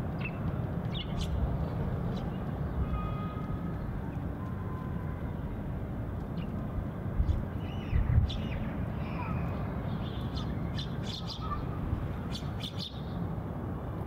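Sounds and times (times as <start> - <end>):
sparrows chirping: 0.1 - 4.3, 7.2 - 13.3.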